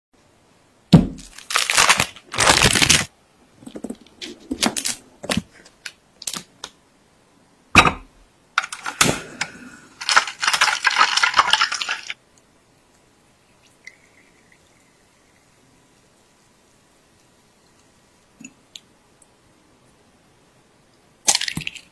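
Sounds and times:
crackling: 0:01.0 - 0:06.8, 0:08.6 - 0:13.0
rustling and scraping: 0:03.6 - 0:05.9.

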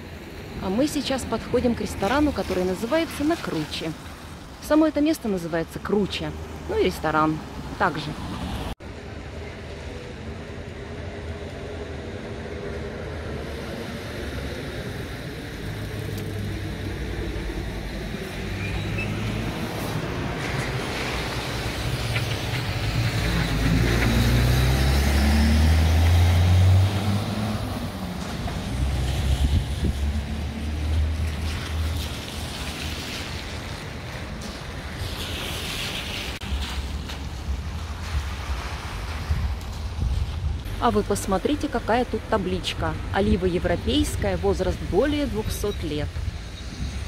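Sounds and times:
road noise rumble: 0:00.0 - 0:47.0
vehicle engine passing by: 0:13.2 - 0:33.8.

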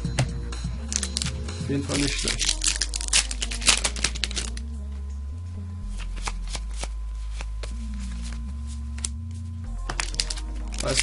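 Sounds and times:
cards snapping against cards: 0:02.2 - 0:04.6, 0:05.9 - 0:07.8, 0:09.8 - 0:11.0.

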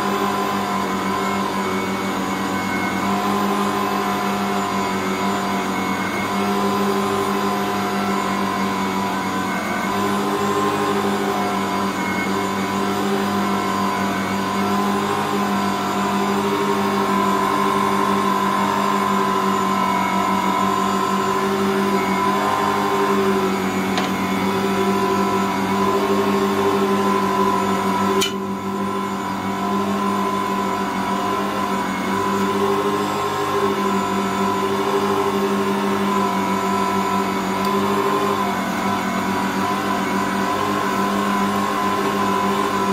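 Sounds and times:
stand mixer motor humming: 0:00.0 - 0:42.9
mixer click: 0:23.9 - 0:24.3.

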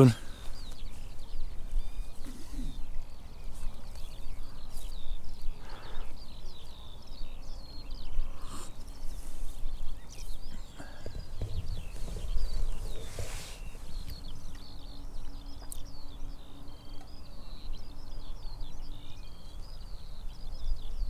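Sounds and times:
wind buffeting microphone: 0:00.0 - 0:16.3
songbird twittering: 0:00.0 - 0:21.0.

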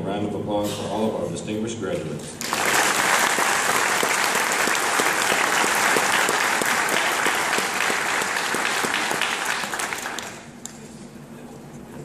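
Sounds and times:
audience applause: 0:02.4 - 0:10.5.

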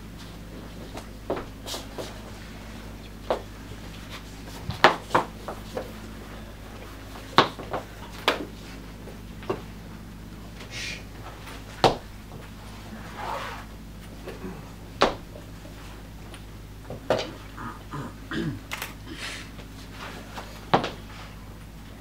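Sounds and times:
steady low hum: 0:00.0 - 0:22.0
clothing rustle: 0:12.5 - 0:14.4.

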